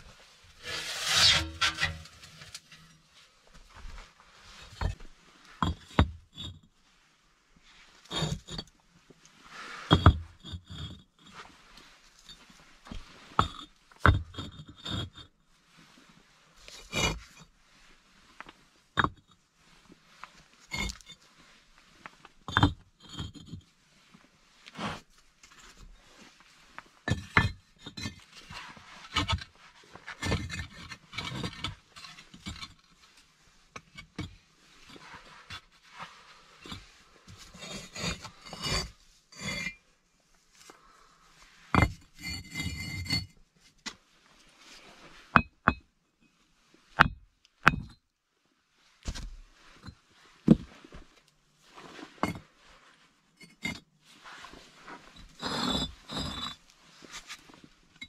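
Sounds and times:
bricks scraping: 0:00.6 - 0:02.6, 0:04.6 - 0:06.6, 0:08.0 - 0:08.7, 0:09.8 - 0:11.1, 0:12.9 - 0:15.3, 0:16.6 - 0:17.5, 0:20.7 - 0:21.2, 0:27.0 - 0:32.8, 0:36.5 - 0:39.8, 0:41.7 - 0:43.4, 0:52.0 - 0:52.5, 0:53.4 - 0:57.6
bricks knocking and clinking: 0:04.7 - 0:06.6, 0:08.1 - 0:08.7, 0:09.9 - 0:11.1, 0:12.9 - 0:15.3, 0:16.8 - 0:17.2, 0:19.0 - 0:19.3, 0:22.5 - 0:23.6, 0:27.1 - 0:28.2, 0:29.1 - 0:29.5, 0:30.2 - 0:32.8, 0:33.8 - 0:34.4, 0:37.5 - 0:39.8, 0:41.7 - 0:43.3, 0:45.3 - 0:45.9, 0:47.0 - 0:48.0, 0:52.2 - 0:52.4, 0:55.2 - 0:56.6
hatchet striking brick: 0:47.0 - 0:48.0.

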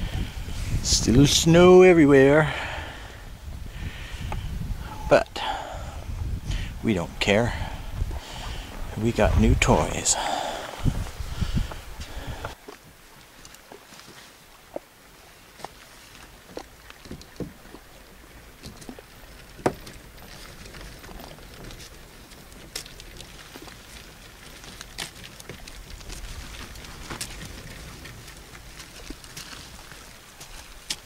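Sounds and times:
clicks and knocks of gear: 0:18.6 - 0:31.0.

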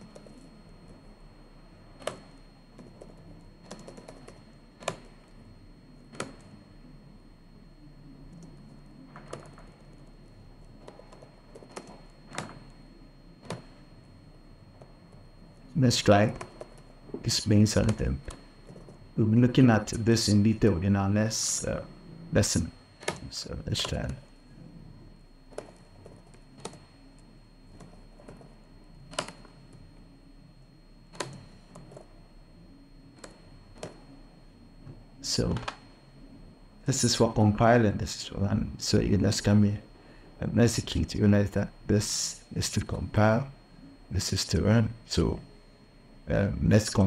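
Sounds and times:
typing on computer keyboard: 0:02.0 - 0:05.2, 0:09.1 - 0:09.8, 0:10.8 - 0:12.6, 0:25.5 - 0:26.9
faint high-pitched tone: 0:17.2 - 0:25.2, 0:30.1 - 0:47.0.

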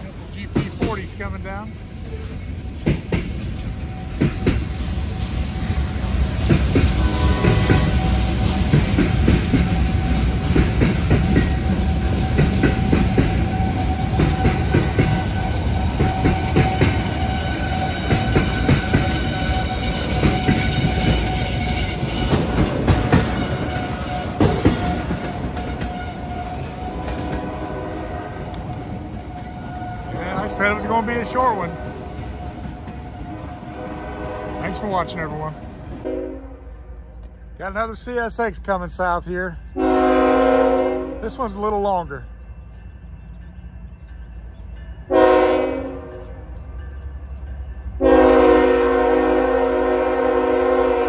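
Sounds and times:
train wheels clacking over rail joints: 0:00.0 - 0:27.6
low rumble of train: 0:00.0 - 0:51.0.

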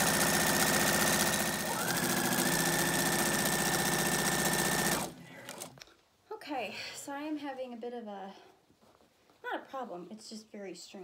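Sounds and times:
serger motor whine and stitching: 0:00.0 - 0:05.7.

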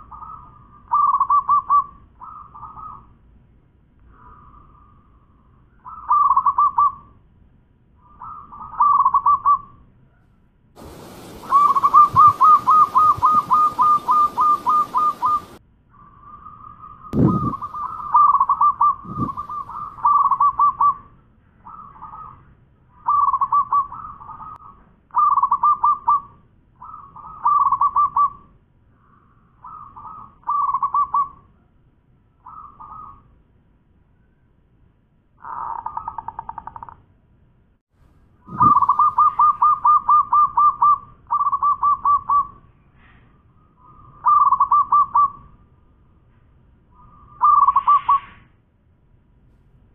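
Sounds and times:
dove cooing: 0:10.8 - 0:15.6, 0:17.2 - 0:21.0, 0:25.2 - 0:26.2, 0:38.5 - 0:42.5, 0:44.2 - 0:45.4, 0:47.4 - 0:48.2
steady hiss: 0:10.8 - 0:15.6.

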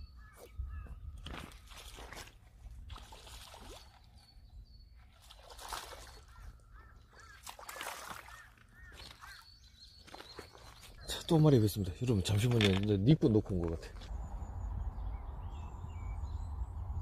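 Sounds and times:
fish splashing in water: 0:01.3 - 0:04.2, 0:05.2 - 0:09.4
crows cawing: 0:06.3 - 0:09.5.

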